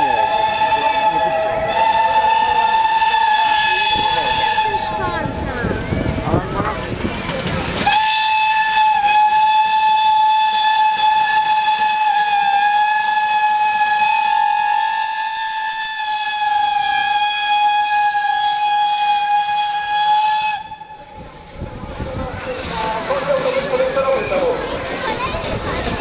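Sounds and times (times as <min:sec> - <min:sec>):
steam locomotive whistle: 0:00.0 - 0:05.4, 0:07.8 - 0:21.4
steam hissing: 0:00.0 - 0:26.0.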